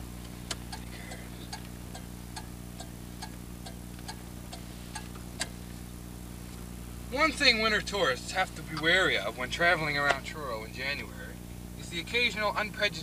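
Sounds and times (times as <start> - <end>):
low steady hum: 0.0 - 13.0
turn-signal flasher clicking: 1.5 - 5.6.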